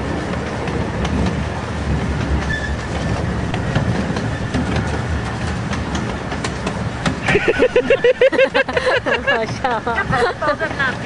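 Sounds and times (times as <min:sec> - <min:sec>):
clicks over rail joints: 0:00.0 - 0:07.6
train wheels rumbling on rails: 0:00.0 - 0:11.0.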